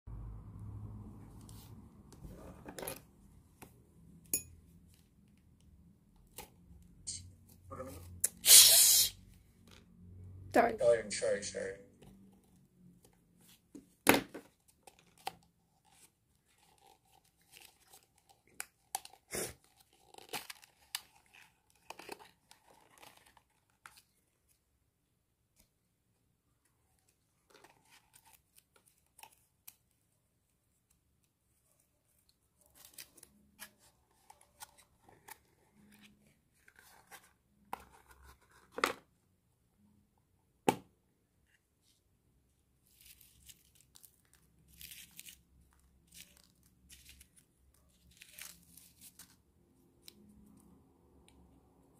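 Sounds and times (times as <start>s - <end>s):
cardboard and paper tearing: 15.1s - 24.1s, 42.9s - 49.4s.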